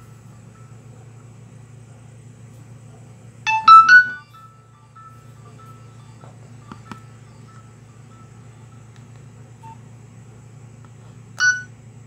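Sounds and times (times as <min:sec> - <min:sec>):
loud short electronic beep: 0:03.5 - 0:04.2, 0:11.4 - 0:11.7
faint electronic ringtone notes: 0:03.5 - 0:08.9, 0:11.4 - 0:11.7.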